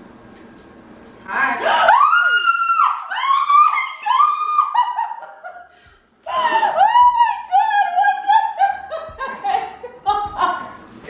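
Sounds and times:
laughter: 4.0 - 10.9.

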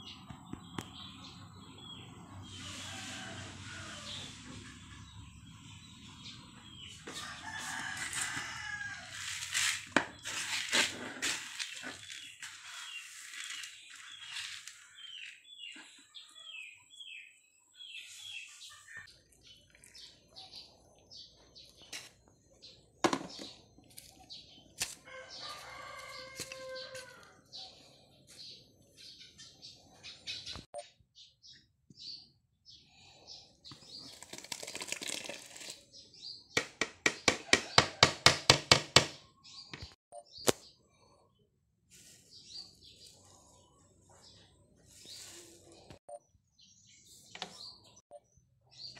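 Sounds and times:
dry grain rustling in basin: 7.1 - 15.4
small birds chirping: 10.2 - 36.6, 39.2 - 48.9.

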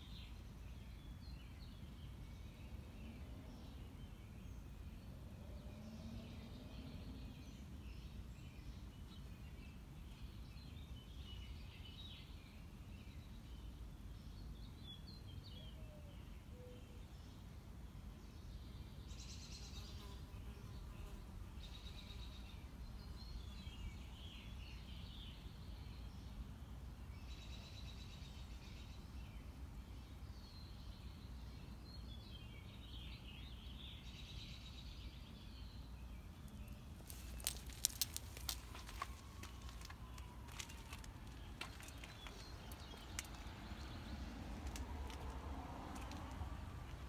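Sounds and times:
songbirds chirping: 0.0 - 47.0
low outdoor rumble: 36.2 - 47.0.

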